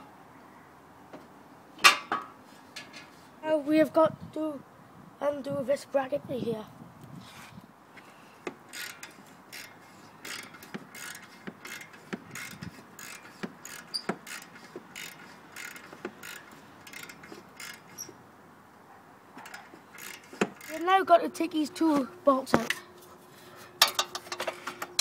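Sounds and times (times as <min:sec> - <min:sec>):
ratchet wrench clicking: 0:08.7 - 0:18.1, 0:19.4 - 0:20.8.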